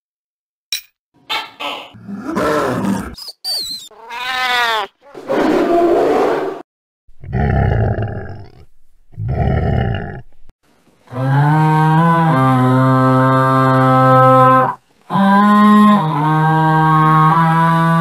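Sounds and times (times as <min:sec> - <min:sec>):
animal roars and growls: 0:01.9 - 0:03.2, 0:05.1 - 0:06.6, 0:07.2 - 0:10.3, 0:11.1 - 0:18.0.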